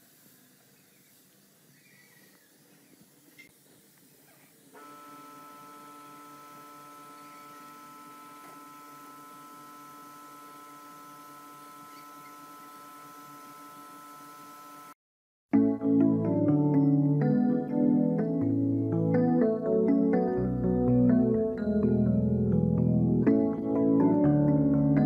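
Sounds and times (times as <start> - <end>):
faint hiss: 0.0 - 14.2
spray equipment humming: 0.0 - 15.0.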